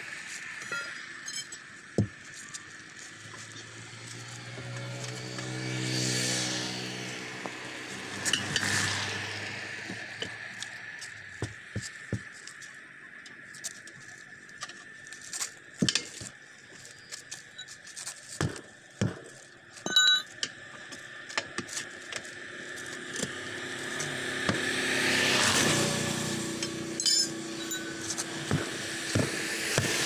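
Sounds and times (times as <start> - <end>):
metallic ring: 0.6 - 1.7, 19.8 - 20.6, 26.4 - 28.3.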